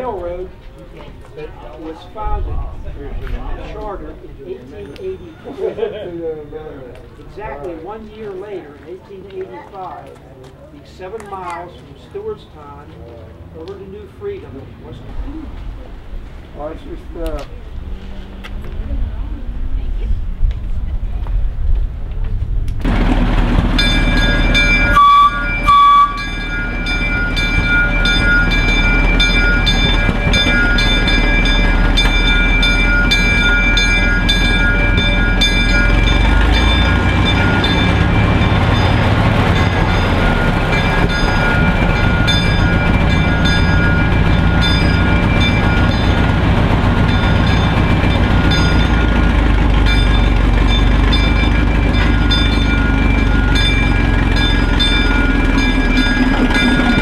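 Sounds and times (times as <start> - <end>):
locomotive engine running: 0.0 - 57.0
locomotive horn blasts: 23.8 - 28.4.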